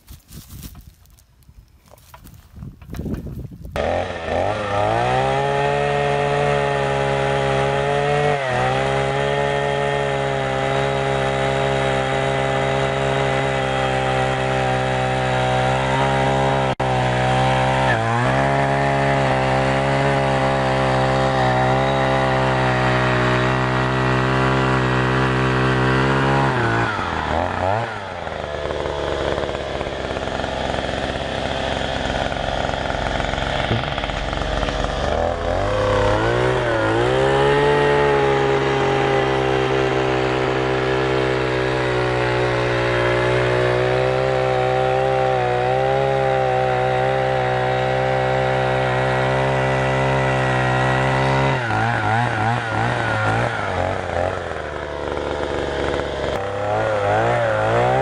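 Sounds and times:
two-stroke auger engine running: 0.0s - 58.0s.

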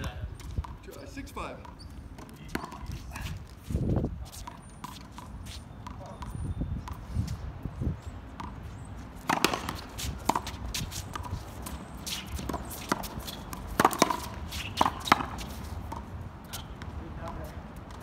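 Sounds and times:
shoes scuffing on court: 0.0s - 18.0s
ball knocking off racquets and wall: 9.2s - 10.6s, 12.4s - 16.1s.

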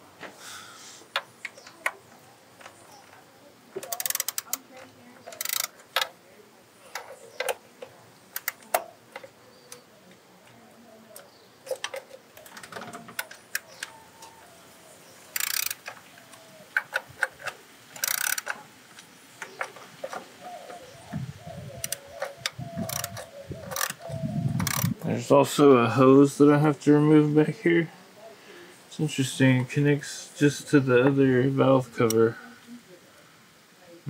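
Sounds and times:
socket ratchet clicking: 3.8s - 4.6s, 5.3s - 6.1s, 15.4s - 16.0s, 16.8s - 18.6s, 21.8s - 24.0s, 24.6s - 25.0s.

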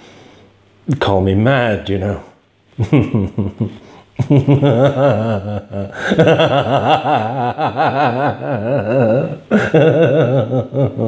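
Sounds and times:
man cackling madly: 2.9s - 11.0s.

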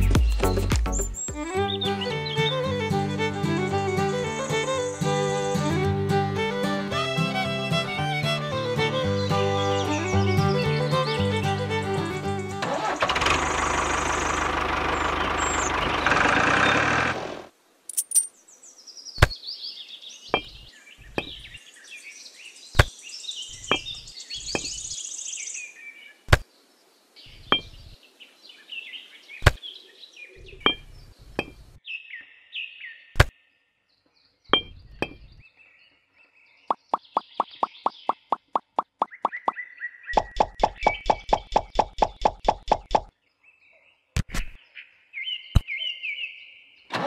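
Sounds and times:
music: 0.0s - 12.6s
birds chirping: 0.0s - 47.0s
bricks clicking on wood: 20.3s - 21.5s, 23.7s - 24.8s, 30.6s - 31.8s.

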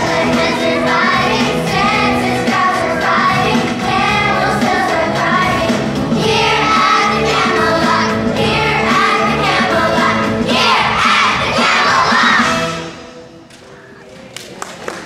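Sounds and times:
children singing: 0.0s - 12.9s
instrumental accompaniment: 0.0s - 13.8s.

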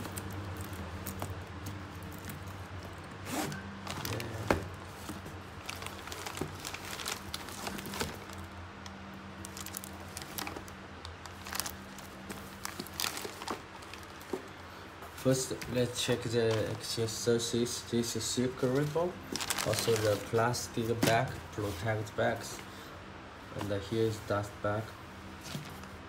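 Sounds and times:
plastic wrapping crinkling: 0.0s - 14.6s, 18.6s - 22.1s
low steady hum: 0.0s - 26.0s.

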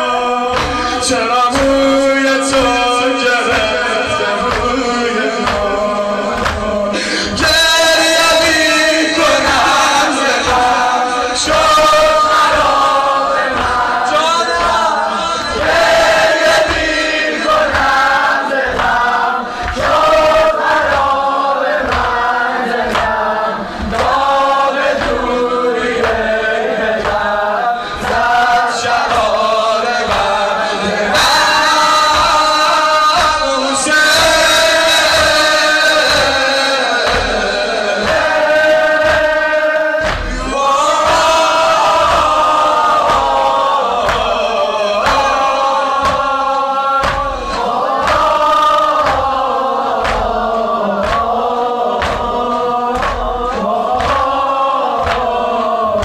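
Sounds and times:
crowd chanting refrain: 0.0s - 56.0s
men chanting in unison: 0.0s - 56.0s
steady low beat: 37.0s - 56.0s.

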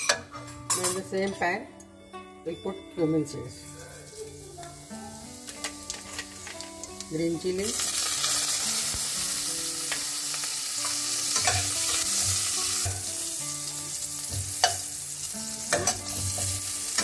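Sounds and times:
seeds sizzling in hot oil: 3.7s - 17.0s
metal spatula scraping a pan: 10.8s - 13.1s, 15.7s - 17.0s.

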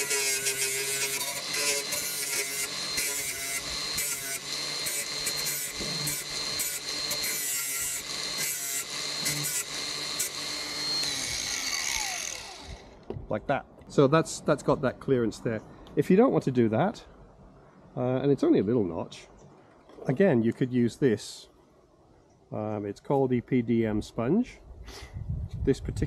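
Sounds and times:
angle grinder cutting metal: 0.0s - 13.0s
grinder motor winding down: 0.0s - 13.0s.

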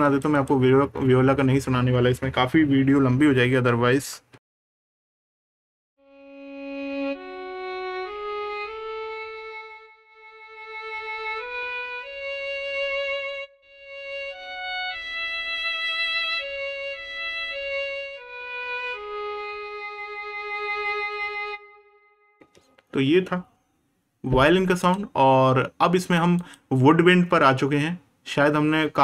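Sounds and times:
solo violin slow melody: 6.0s - 22.4s.

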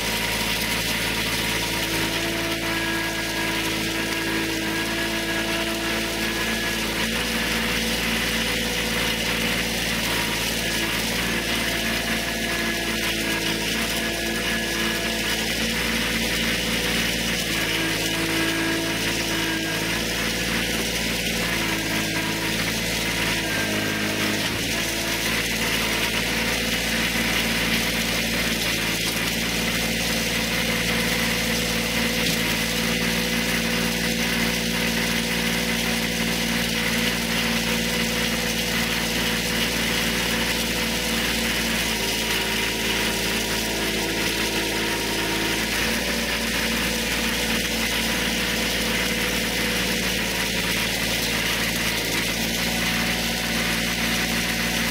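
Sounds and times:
tractor diesel engine running: 0.0s - 54.9s.

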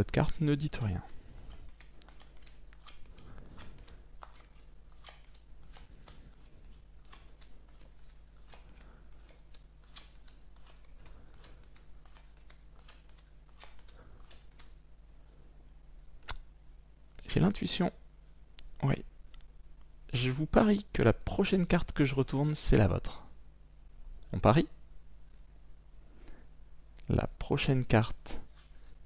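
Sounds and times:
playing cards snapping and sliding: 1.1s - 14.8s.

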